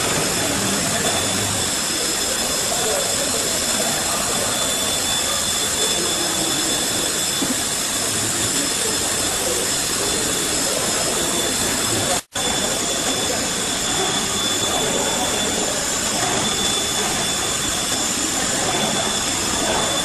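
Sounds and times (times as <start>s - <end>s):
milling machine hiss: 0.0s - 20.0s
thin high whines: 0.0s - 20.0s.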